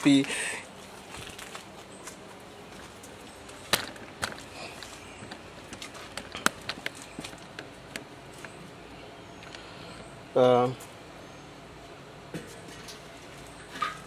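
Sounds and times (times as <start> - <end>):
footsteps: 0.2 - 7.6
handling knocks and clicks: 3.7 - 8.6.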